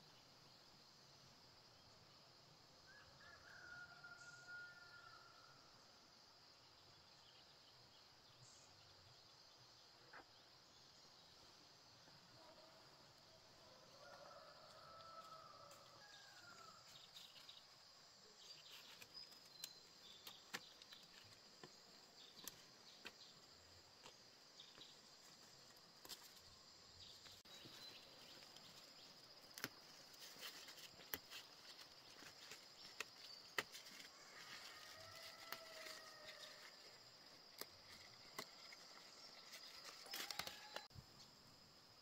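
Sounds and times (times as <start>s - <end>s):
insects chirring: 9.8s - 42.0s
snaps and leaf rustles: 18.5s - 23.2s, 25.3s - 26.5s, 27.2s - 40.9s.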